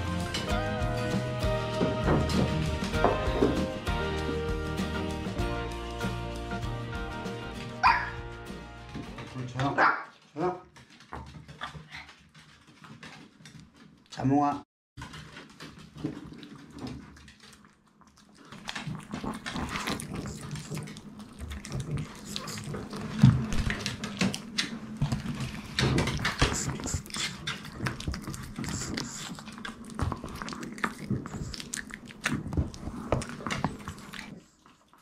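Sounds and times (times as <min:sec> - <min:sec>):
dogs chewing wet smacks: 0:15.6 - 0:35.0.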